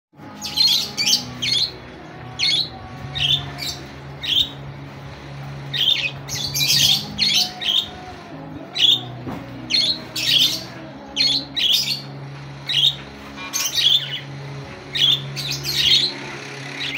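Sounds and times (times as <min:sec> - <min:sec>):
steady low hum: 0:00.2 - 0:16.9
budgerigars squawking: 0:02.4 - 0:04.6, 0:05.7 - 0:08.1, 0:08.7 - 0:16.9.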